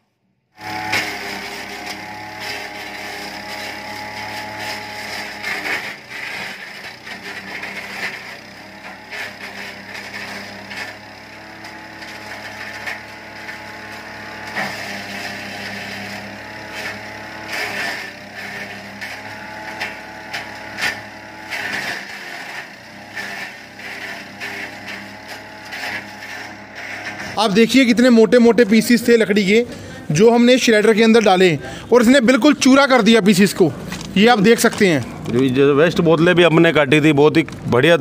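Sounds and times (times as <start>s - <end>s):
blades chipping wood: 0.6s - 29.2s
wood chipper engine running: 0.6s - 38.0s.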